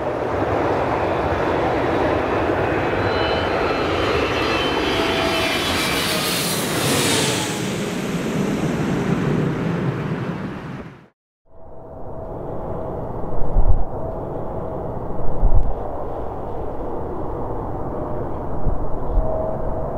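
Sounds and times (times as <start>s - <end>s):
jet roar with whining fan tone: 0.0s - 11.1s.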